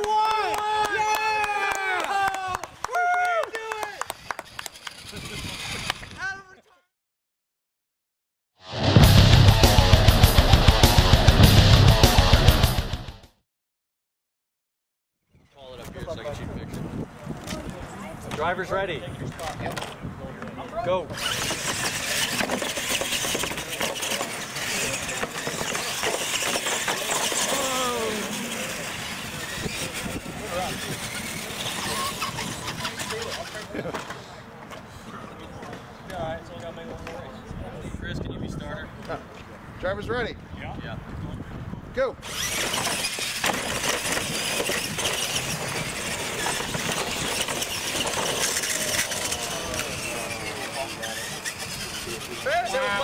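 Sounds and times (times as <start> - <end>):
toy truck motors whining: 4.1 - 6.2, 21.1 - 34.3, 42.2 - 53.0
tyres rumbling on pavement: 19.3 - 34.4, 42.2 - 53.0.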